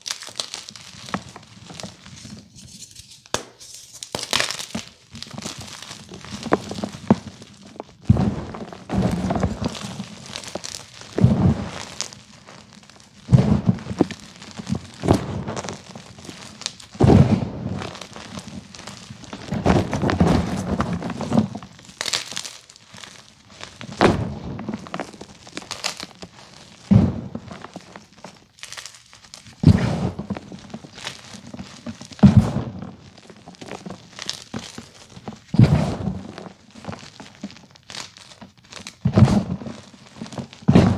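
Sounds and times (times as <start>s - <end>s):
chalk crunching and crackling: 0.0s - 40.9s.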